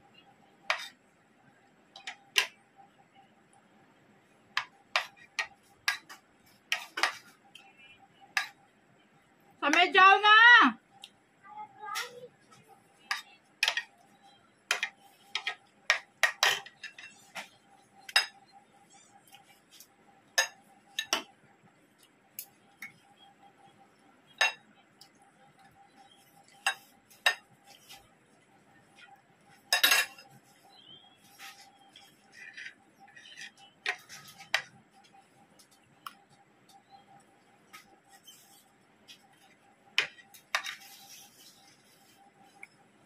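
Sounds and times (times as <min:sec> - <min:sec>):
cutlery clinking on a plate: 0:04.6 - 0:07.2, 0:13.1 - 0:13.9, 0:14.7 - 0:17.5, 0:20.4 - 0:21.3, 0:26.5 - 0:27.6, 0:29.7 - 0:30.3, 0:40.0 - 0:40.9.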